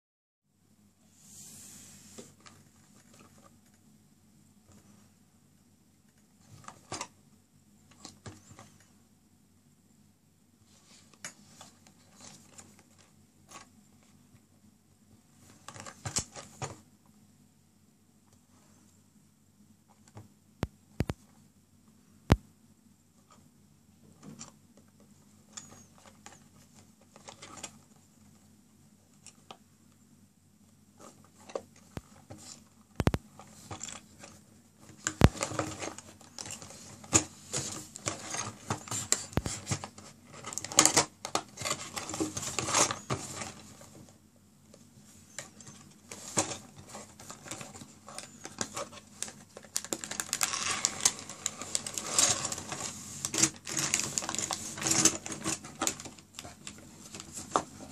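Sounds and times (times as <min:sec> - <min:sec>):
plastic bag crinkling: 0:47.2 - 0:57.5.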